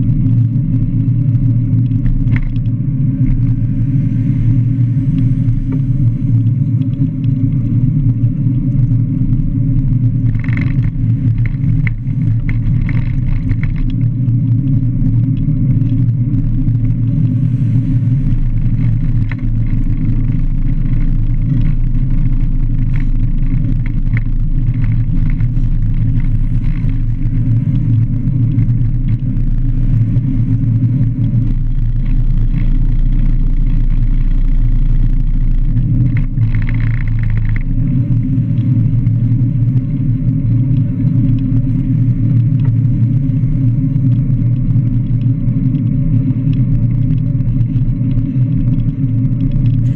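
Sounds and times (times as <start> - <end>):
road noise: 0.0 - 49.9
wind buffeting: 1.8 - 45.0
light clicks and rattles: 10.2 - 17.3, 18.4 - 39.7, 43.9 - 49.9.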